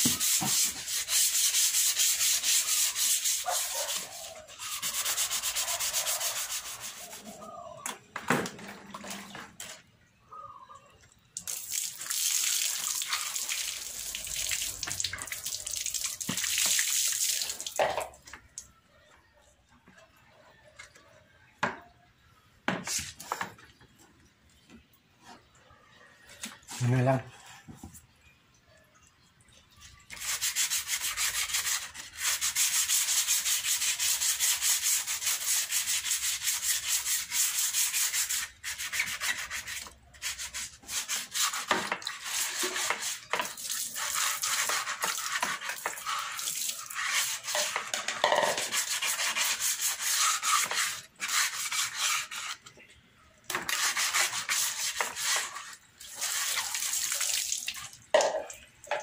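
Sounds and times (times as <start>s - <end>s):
sandpaper rasping on plastic: 0.0s - 7.4s, 30.1s - 52.6s, 53.5s - 57.0s.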